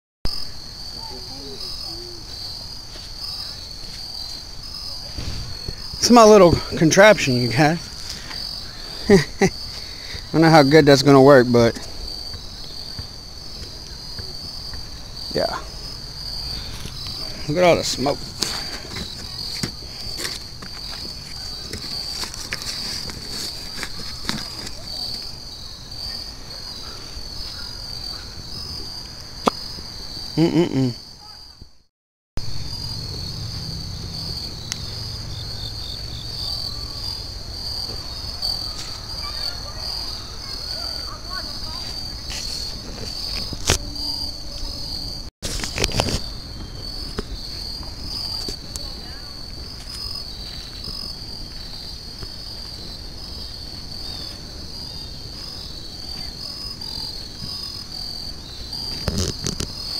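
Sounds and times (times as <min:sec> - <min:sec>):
crickets chirping: 0:00.3 - 0:59.9
fire popping: 0:05.0 - 0:10.4, 0:58.8 - 0:59.8.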